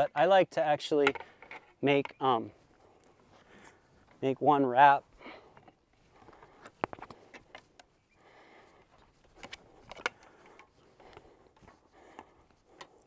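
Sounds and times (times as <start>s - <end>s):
wire clicking and scraping: 5.5s - 8.0s, 8.8s - 13.0s.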